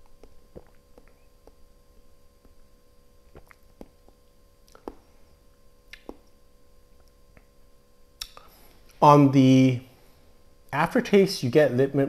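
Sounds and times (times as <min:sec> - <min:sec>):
wet mouth clicks and lip smacks: 0:00.2 - 0:01.6, 0:03.3 - 0:05.0, 0:05.9 - 0:06.4, 0:08.2 - 0:08.5.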